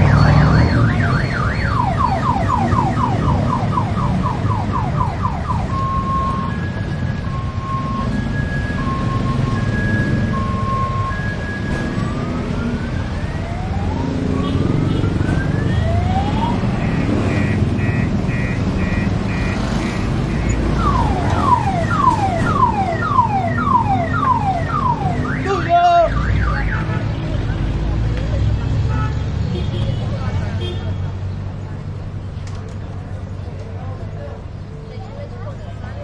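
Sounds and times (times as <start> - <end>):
car alarm: 0.0 - 12.3, 16.6 - 26.9
street noise rumble: 0.0 - 36.0.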